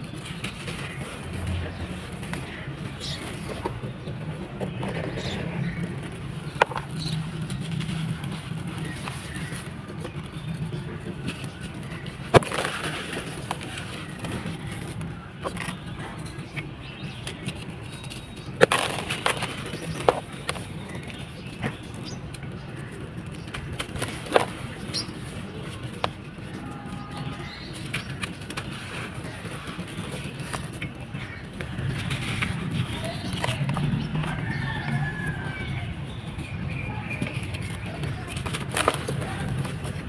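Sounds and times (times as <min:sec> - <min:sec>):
gritty crunching of sand balls: 0:11.2 - 0:15.8, 0:16.9 - 0:21.9, 0:27.5 - 0:40.0.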